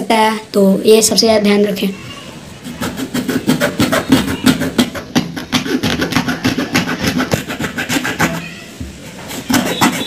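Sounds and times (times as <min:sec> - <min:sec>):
saw rasping through leather: 0:02.6 - 0:08.4, 0:09.1 - 0:10.0.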